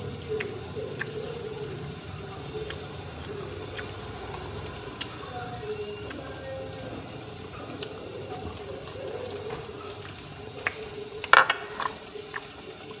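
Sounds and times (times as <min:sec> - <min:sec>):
crunchy food being chewed: 0:00.2 - 0:05.2.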